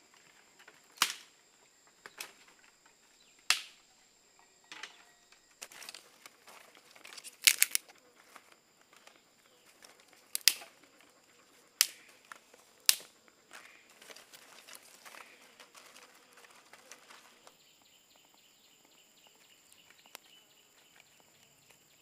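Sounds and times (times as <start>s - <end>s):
dry twigs snapping: 1.0s - 1.3s, 3.5s - 3.8s, 5.6s - 7.9s, 10.3s - 10.7s, 11.8s - 15.3s
brush rustling: 5.6s - 8.5s, 11.9s - 17.5s.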